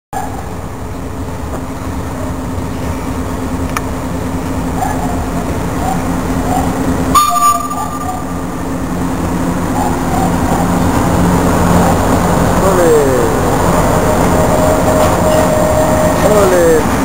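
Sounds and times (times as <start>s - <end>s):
diesel locomotive drone: 0.1s - 17.0s
high-pitched tone: 7.1s - 8.4s, 11.8s - 17.0s.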